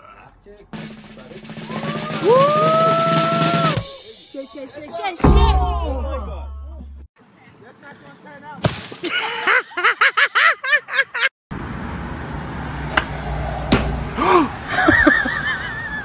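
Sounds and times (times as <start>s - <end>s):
noisy outdoor rumble: 0.2s - 4.0s
sharp knock: 5.2s - 7.0s.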